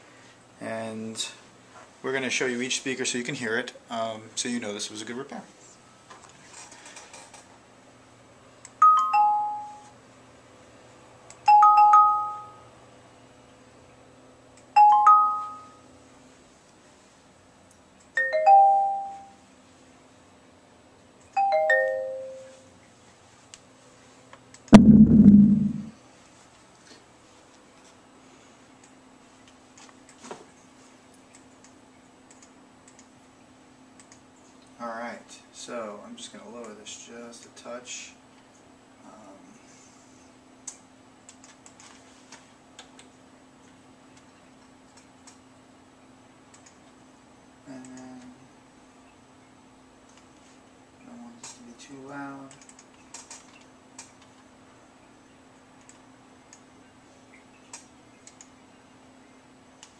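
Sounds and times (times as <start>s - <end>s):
steady low hum: 24.7s - 26.0s
loud low sound: 24.8s - 25.9s
computer mouse clicking: 31.3s - 33.1s, 34.0s - 34.2s, 40.7s - 41.8s, 46.5s - 46.8s, 52.5s - 54.3s, 55.8s - 56.6s, 57.7s - 58.5s.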